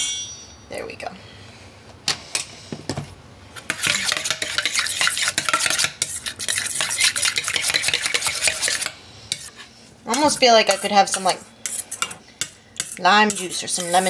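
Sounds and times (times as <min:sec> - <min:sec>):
stirring in a metal bowl: 0:03.6 - 0:14.0.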